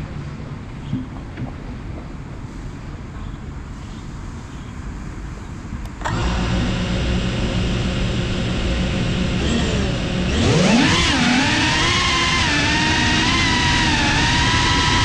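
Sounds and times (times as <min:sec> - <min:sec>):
quadcopter motors whining: 0:06.0 - 0:15.0.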